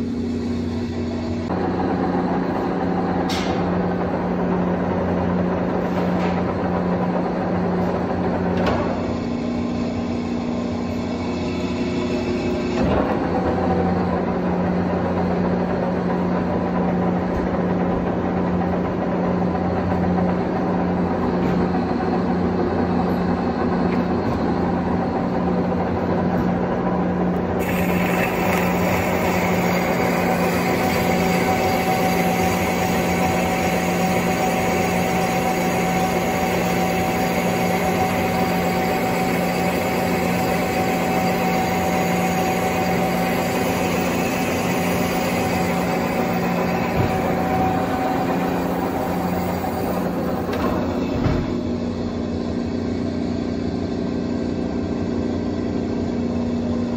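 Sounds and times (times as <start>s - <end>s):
lathe humming: 6.6s - 53.0s
thin steady whine: 19.4s - 56.9s
tool cutting metal hiss: 27.6s - 50.6s.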